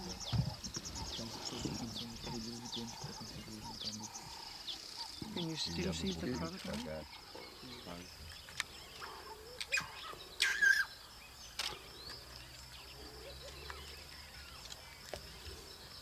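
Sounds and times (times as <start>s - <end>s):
high insect trill: 0.0s - 16.0s
bird chirps and clicks: 8.3s - 10.8s, 11.4s - 12.6s, 13.4s - 15.5s.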